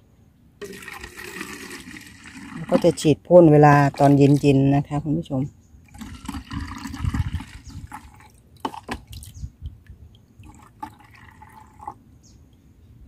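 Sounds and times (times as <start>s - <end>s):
liquid pouring into plastic bottle: 0.6s - 3.1s, 5.9s - 9.4s, 10.4s - 12.0s.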